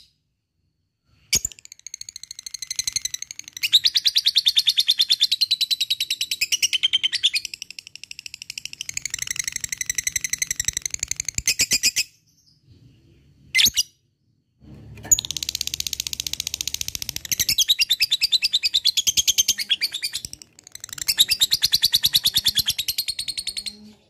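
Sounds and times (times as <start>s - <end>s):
bird chattering rapidly: 15.1s - 23.8s.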